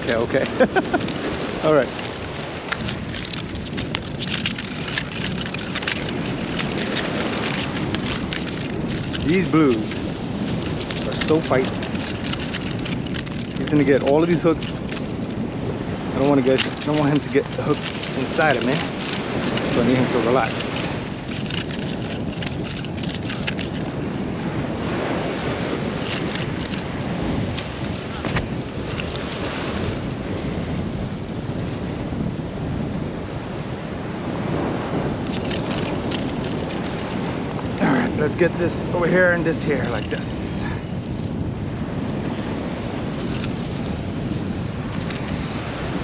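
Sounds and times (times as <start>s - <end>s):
surf: 0.0s - 46.0s
wind on microphone: 0.0s - 46.0s
crackles and taps: 2.0s - 15.4s, 20.4s - 24.2s, 26.0s - 30.1s.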